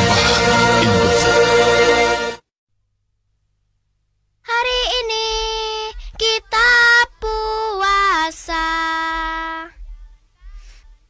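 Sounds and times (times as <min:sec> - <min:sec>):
child singing a jingle: 0:04.5 - 0:10.1.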